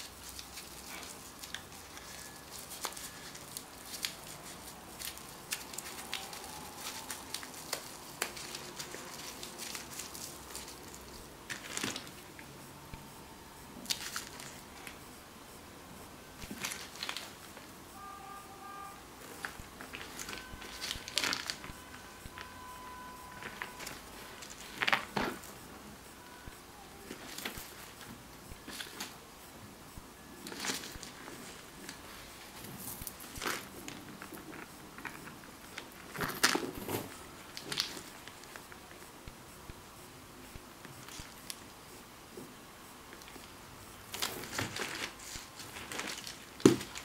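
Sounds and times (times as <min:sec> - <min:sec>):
plastic wrapping crinkling: 0:00.0 - 0:12.5, 0:13.8 - 0:15.0, 0:16.4 - 0:17.7, 0:19.2 - 0:25.7, 0:27.0 - 0:29.2, 0:30.4 - 0:38.8, 0:44.1 - 0:47.0
faint electronic tones: 0:00.0 - 0:46.6.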